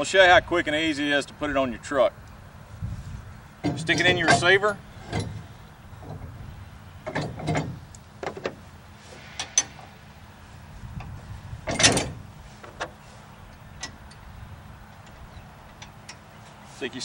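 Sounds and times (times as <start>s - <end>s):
metal scrapes and clunks: 2.9s - 14.3s.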